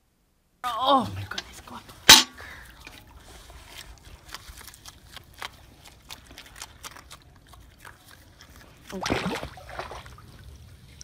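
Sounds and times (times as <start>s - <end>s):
faint water lapping: 1.6s - 11.0s
sea otter crunching snow: 3.3s - 7.7s.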